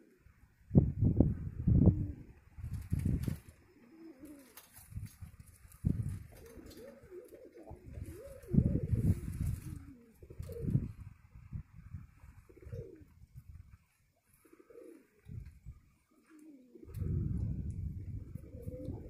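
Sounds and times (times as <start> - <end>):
pigeons cooing: 1.6 - 2.4, 3.0 - 4.9, 5.8 - 11.6, 12.2 - 13.6, 14.2 - 19.0.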